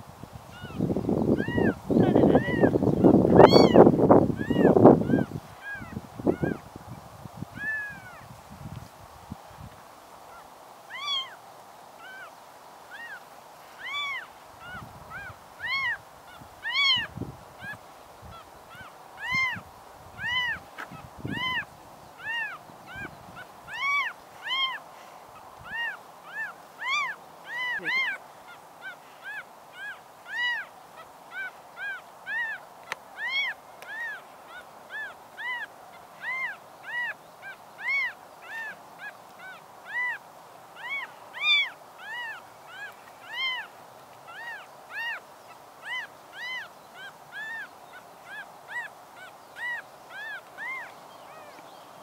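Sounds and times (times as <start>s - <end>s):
kitten mewing: 3.4s - 3.8s, 25.7s - 28.2s.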